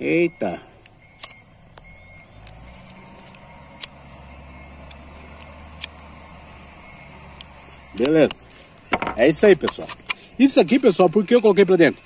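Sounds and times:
low engine-like hum: 0.0 - 11.2
sharp clicks: 0.8 - 6.1, 7.3 - 11.5.

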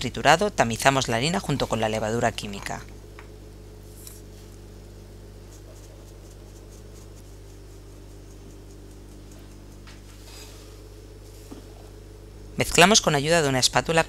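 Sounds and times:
steady low hum: 0.0 - 14.0
flour sifting through mesh sieve: 5.4 - 11.9.

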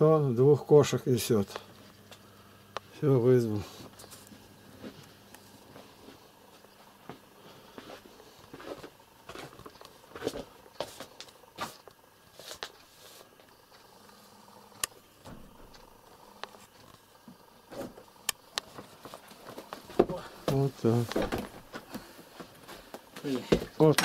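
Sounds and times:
handling knocks and rustling: 18.6 - 24.0.

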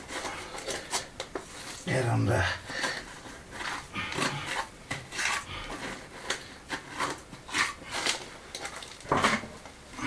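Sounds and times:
trowel scraping mortar: 2.7 - 10.0.

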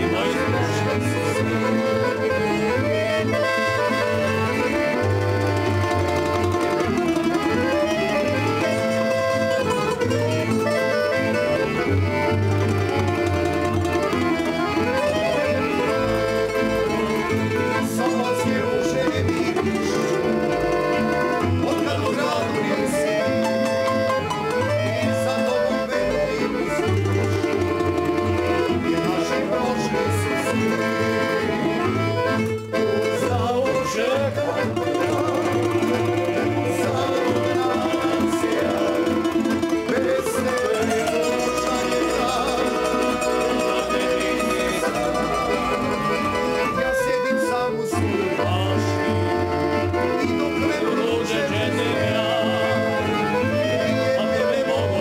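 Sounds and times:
men singing together: 0.0 - 5.3, 16.4 - 20.6, 21.5 - 23.7, 24.8 - 32.0, 32.8 - 55.0
accordion: 0.0 - 55.0
double bass: 0.0 - 55.0
plucked tamburicas: 0.0 - 55.0.

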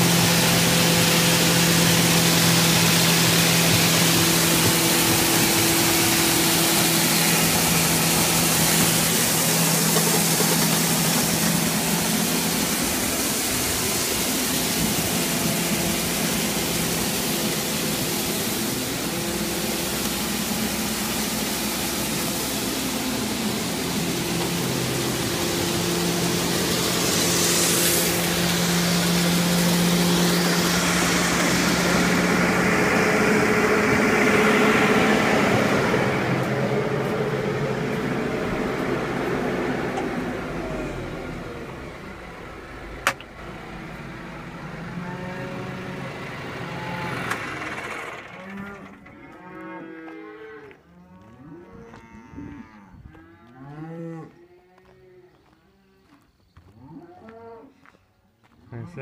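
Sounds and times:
hiss of running grain: 0.0 - 41.6
machine drone: 0.0 - 50.7.

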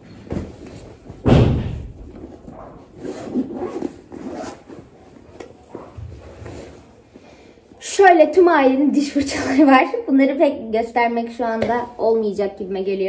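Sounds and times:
door slamming: 1.2 - 2.0.

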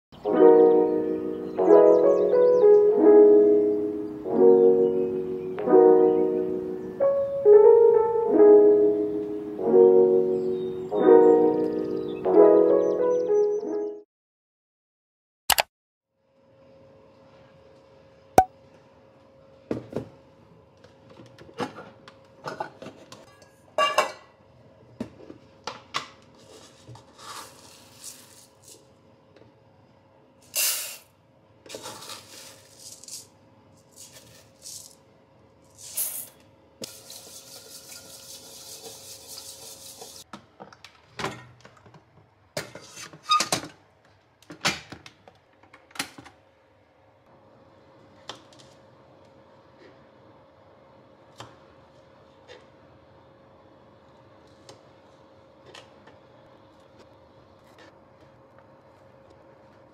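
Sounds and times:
dishes and utensils clinking: 23.3 - 24.3.

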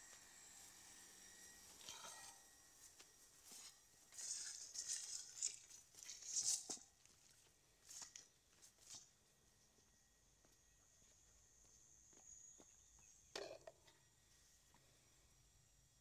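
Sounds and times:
leaves and grass rustling: 2.9 - 9.1.

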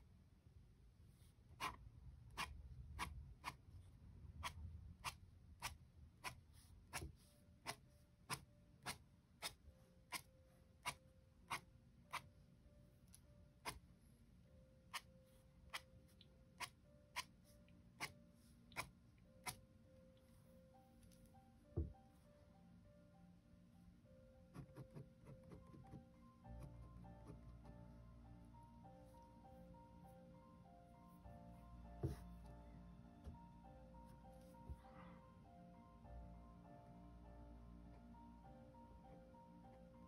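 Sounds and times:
faint background music: 0.0 - 40.0
pen scratching on paper: 24.5 - 26.0.

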